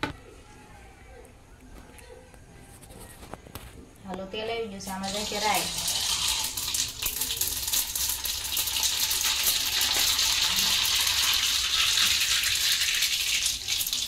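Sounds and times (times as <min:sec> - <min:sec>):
seeds crackling in hot oil: 0:04.8 - 0:14.0.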